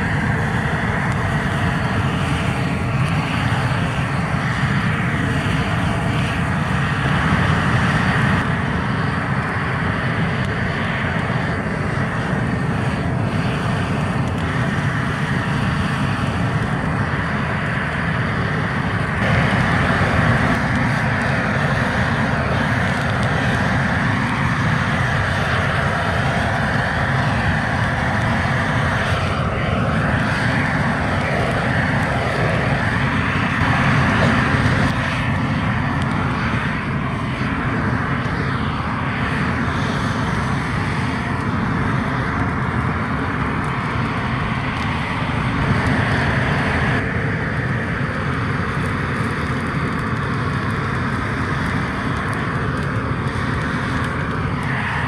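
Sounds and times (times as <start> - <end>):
gas torch flame hissing: 0.1 - 37.0.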